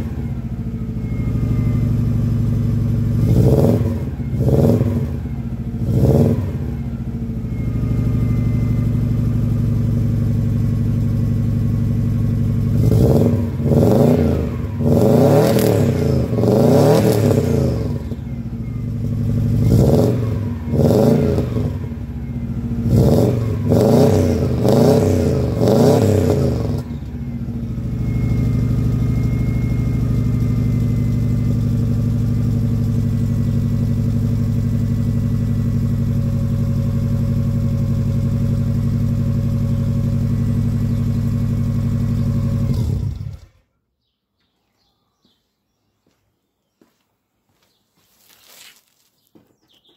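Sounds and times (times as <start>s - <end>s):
car engine idling: 0.0s - 43.6s
engine revving in throttle blips: 0.0s - 43.7s.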